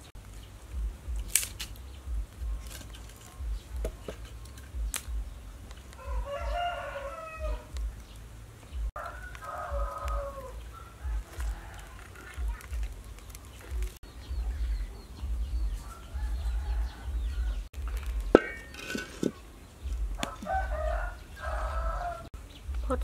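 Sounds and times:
kindling sticks clicking: 0.2s - 6.1s, 7.6s - 14.0s
rooster crowing: 6.0s - 7.8s, 9.0s - 12.2s, 15.7s - 17.7s, 20.2s - 22.3s.

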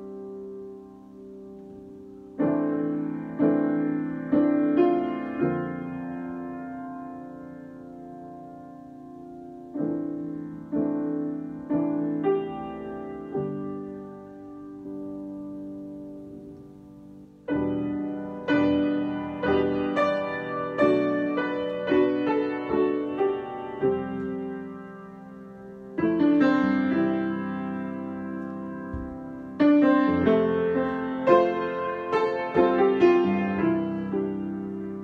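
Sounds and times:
solo grand piano improvisation: 0.0s - 35.0s.

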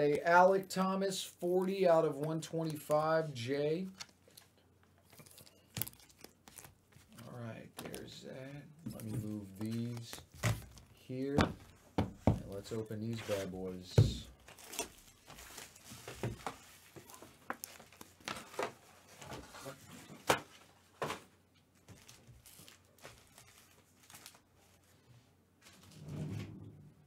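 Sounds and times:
foil packs crinkling: 5.1s - 7.3s, 14.4s - 19.5s, 21.8s - 24.8s.

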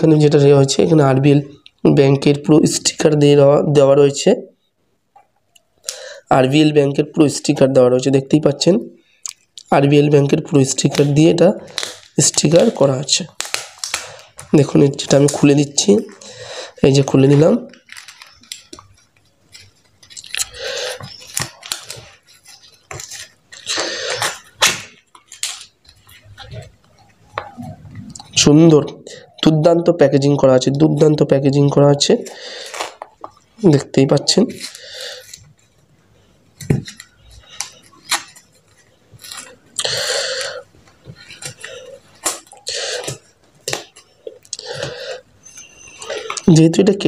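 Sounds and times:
paper tearing with crackling rip: 10.8s - 14.4s
adhesive strip peeling off envelope: 11.7s - 14.4s.

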